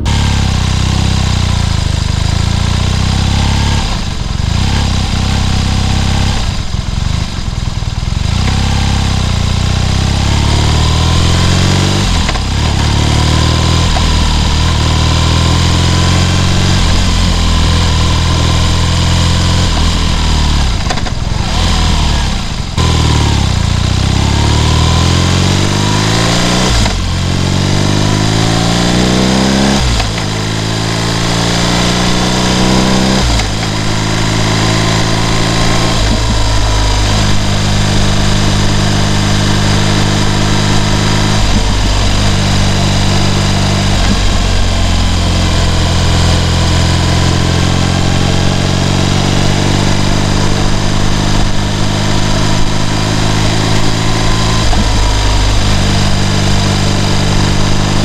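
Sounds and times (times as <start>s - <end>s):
motorcycle engine accelerating: 0.0s - 58.0s.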